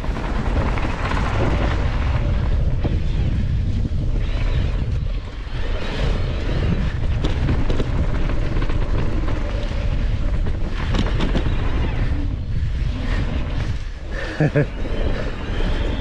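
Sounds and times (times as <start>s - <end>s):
wind buffeting microphone: 0.0s - 16.0s
bike knocks and rattles: 6.5s - 11.9s.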